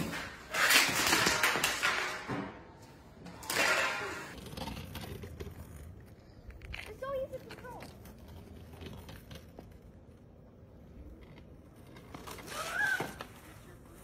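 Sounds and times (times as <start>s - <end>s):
hockey stick and skates hitting ground: 0.0s - 4.9s, 12.0s - 13.8s.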